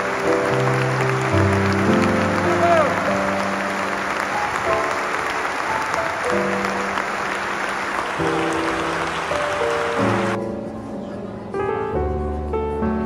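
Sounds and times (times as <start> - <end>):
audience applauding: 0.0 - 10.4
soft music of held chords: 9.8 - 13.0.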